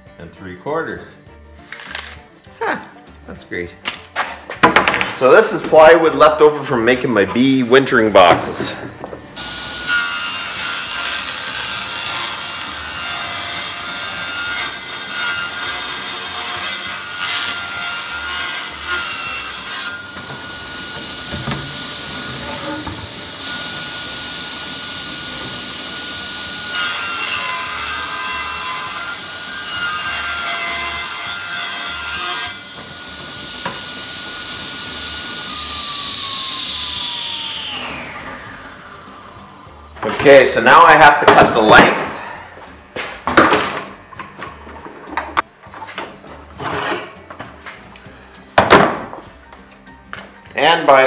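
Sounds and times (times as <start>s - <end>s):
table saw cutting plywood: 5.2s - 42.0s
saw blade whining: 9.4s - 42.9s.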